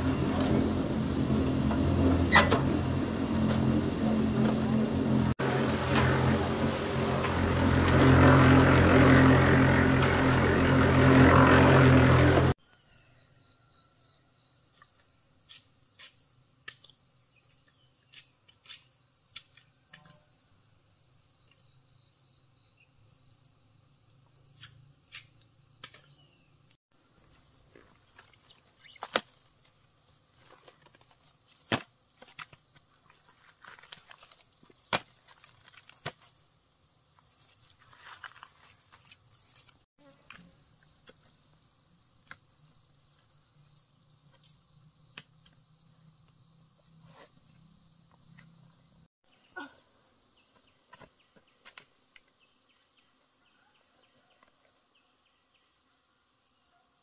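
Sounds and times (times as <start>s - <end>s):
motor engine running: 0.0s - 12.6s
insects chirping: 12.7s - 53.8s.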